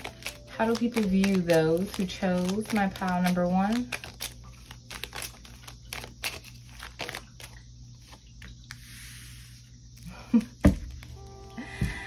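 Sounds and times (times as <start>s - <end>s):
cards shuffling: 0.0s - 9.5s.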